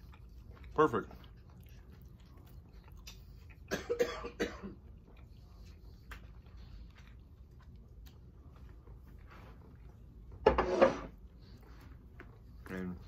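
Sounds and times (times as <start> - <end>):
faint room noise: 0.0 - 13.0
person coughing: 3.7 - 4.8.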